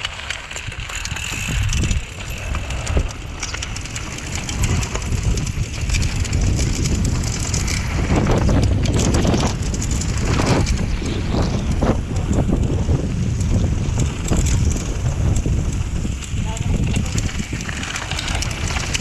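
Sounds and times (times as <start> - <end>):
bike clicks and rattles: 0.0 - 19.0
bike tyres rolling on loose dirt: 0.0 - 19.0
wind buffeting microphone: 0.0 - 19.0.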